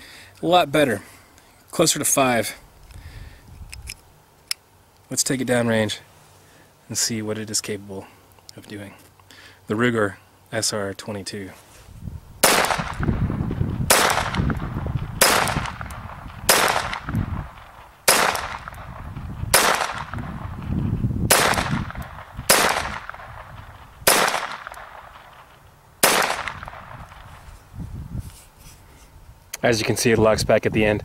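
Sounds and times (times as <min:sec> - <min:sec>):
pistol shots: 0:12.4 - 0:20.6, 0:21.3 - 0:27.3.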